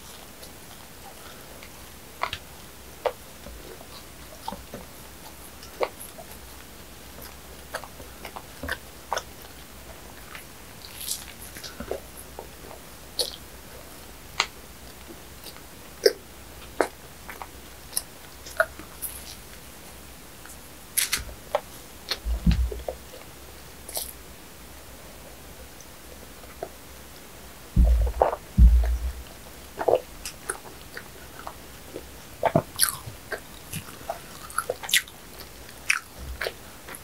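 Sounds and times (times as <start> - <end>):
chewing and mouth sounds: 0.4 - 13.4, 14.4 - 19.6, 23.9 - 24.2, 27.8 - 37.0.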